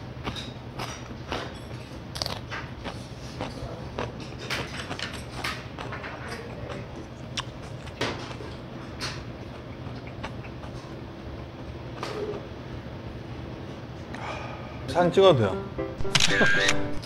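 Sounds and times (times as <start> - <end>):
chewing crunchy chili pepper: 0.0 - 12.4.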